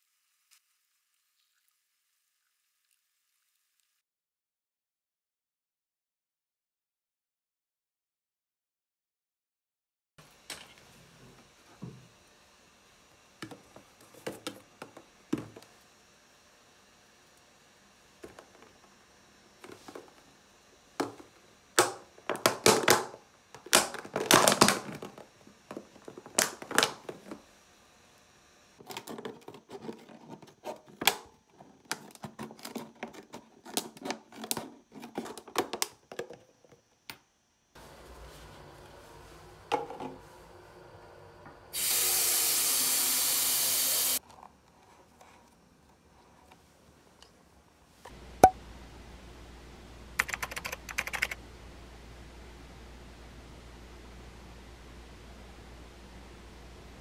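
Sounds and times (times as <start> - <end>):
loud steady hiss: 37.8 - 44.2.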